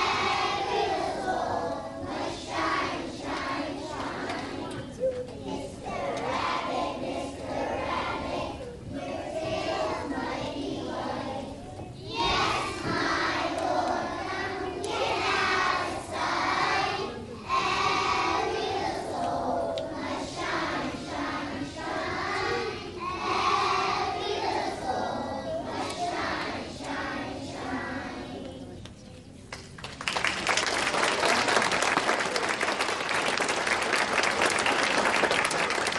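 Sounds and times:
young children singing together: 0.0s - 28.9s
audience applauding: 29.5s - 35.9s.

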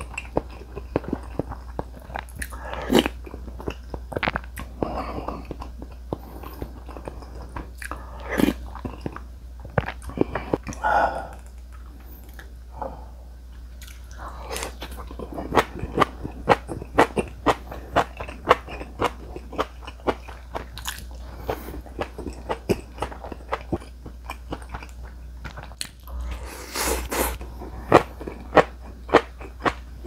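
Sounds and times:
crunchy chewing of vegetables: 0.0s - 12.6s, 13.6s - 30.0s
breathy noise: 10.0s - 11.5s.

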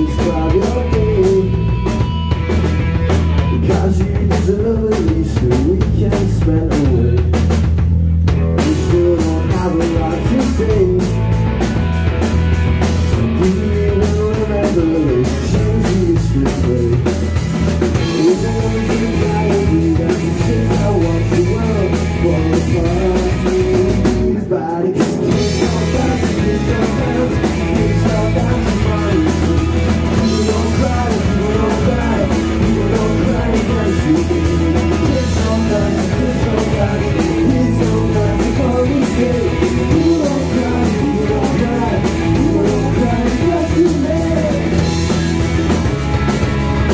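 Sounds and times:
person singing: 0.0s - 2.0s, 8.6s - 11.2s, 13.2s - 17.2s, 18.0s - 45.1s
rock band playing: 0.0s - 46.9s.

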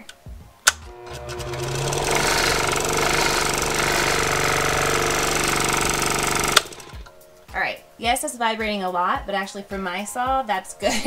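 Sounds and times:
scroll saw motor running: 0.7s - 7.1s.

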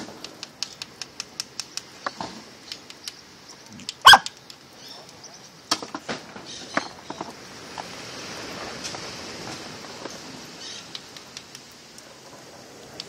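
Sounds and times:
dog barking: 4.0s - 4.3s.

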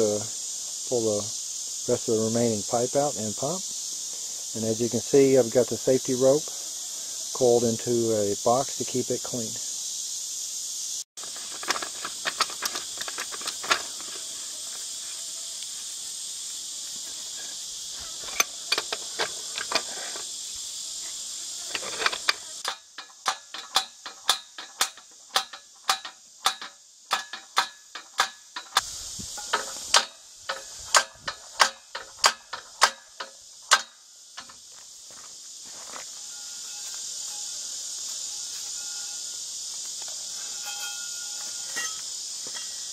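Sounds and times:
insect drone: 0.0s - 42.9s
wrenches clicking on metal pipe: 21.7s - 28.8s, 29.4s - 34.0s.

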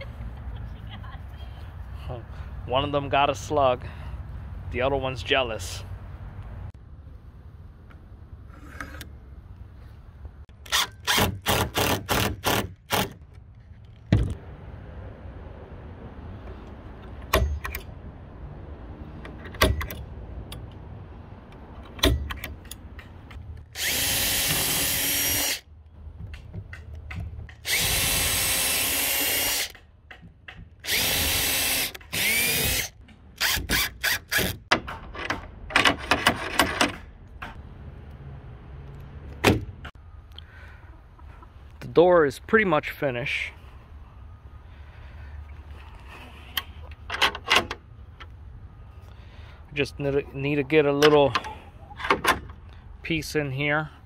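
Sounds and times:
drill running: 23.8s - 25.6s, 27.6s - 29.7s, 30.8s - 34.4s.

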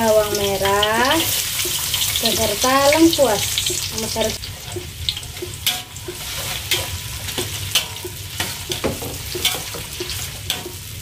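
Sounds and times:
food sizzling in oil: 0.0s - 11.0s
metal spatula scraping a wok: 3.5s - 11.0s.

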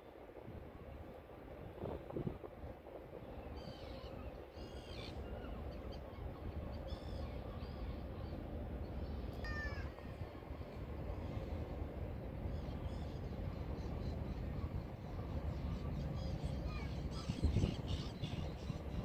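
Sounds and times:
gulls calling: 9.3s - 11.3s.

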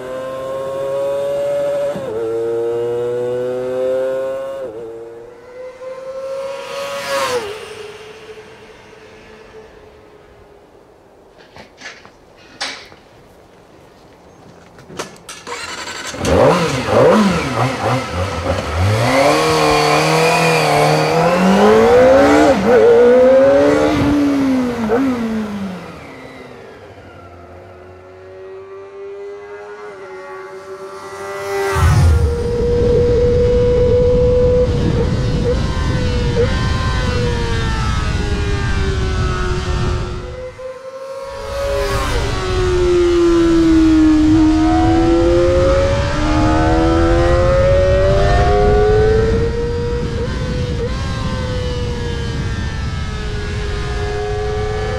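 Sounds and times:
motorcycle engine revving: 0.0s - 10.3s, 15.3s - 54.9s
rough low rumble: 6.0s - 11.1s.

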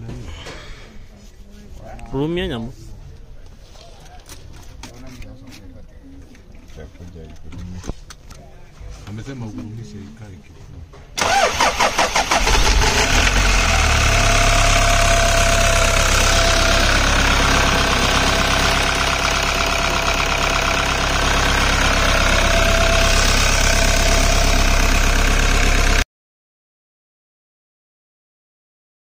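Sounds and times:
engine cranking and starting: 11.2s - 26.0s
engine running steadily: 11.2s - 26.0s.

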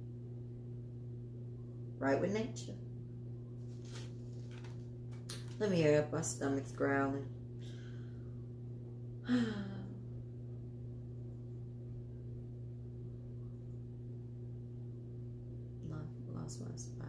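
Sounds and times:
low background hum: 0.0s - 17.0s
woman sighing: 9.2s - 10.0s.

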